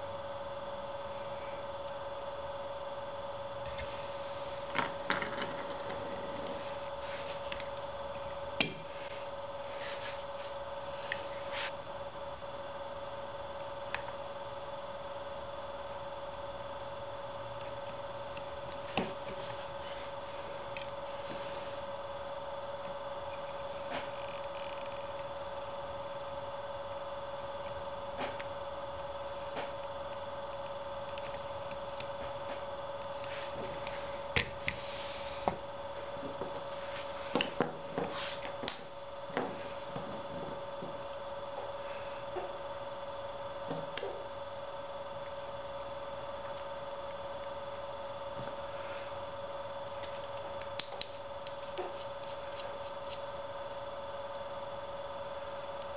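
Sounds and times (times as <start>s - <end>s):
steady electrical hum: 0.0s - 55.9s.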